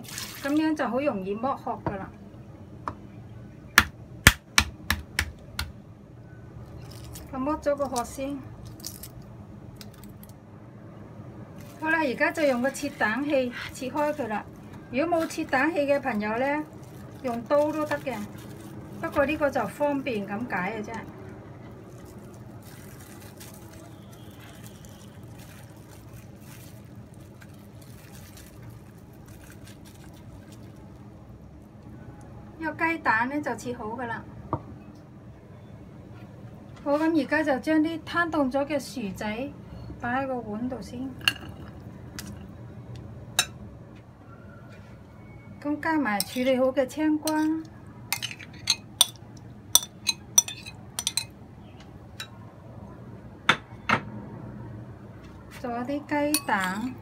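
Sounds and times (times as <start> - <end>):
glass bowls clinking: 41.2 - 41.8, 46.2 - 46.5, 48.1 - 49.2, 49.8 - 51.3, 56.3 - 57.0.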